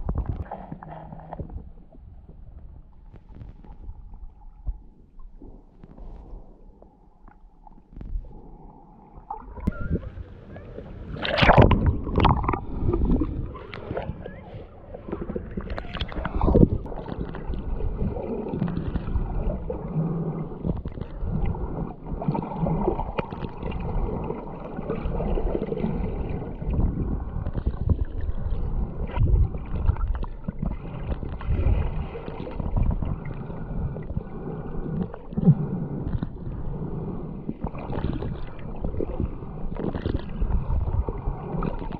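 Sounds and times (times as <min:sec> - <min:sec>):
muffled underwater sloshing: 0:00.0 - 0:41.9.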